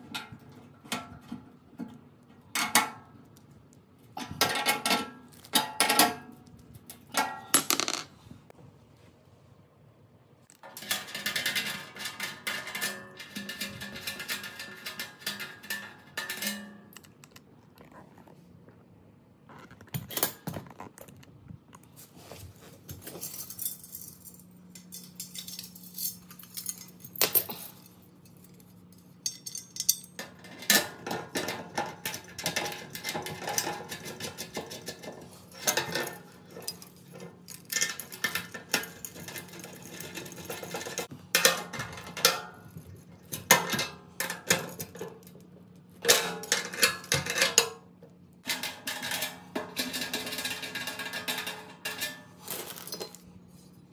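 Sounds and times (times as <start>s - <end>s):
metal bolts clinking on grill: 23.2s - 45.4s.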